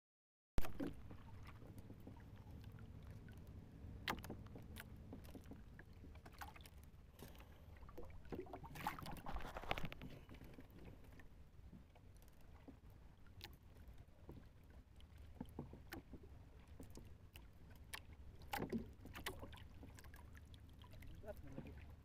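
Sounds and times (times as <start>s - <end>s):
low rumble of wind and water: 0.6s - 22.0s
fishing line handling clicks and rustling: 8.8s - 11.2s.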